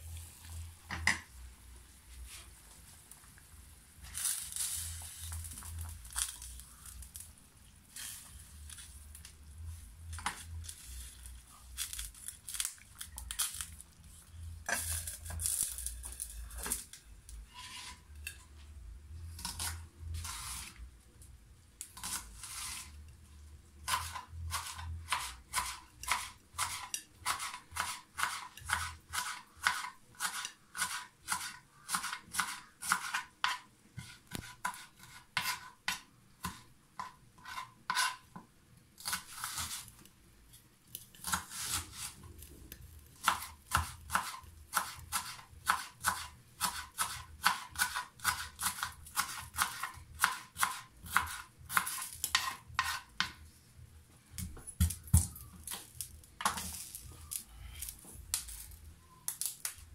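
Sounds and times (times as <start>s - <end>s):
food rustling: 4.0s - 18.6s, 54.7s - 59.9s.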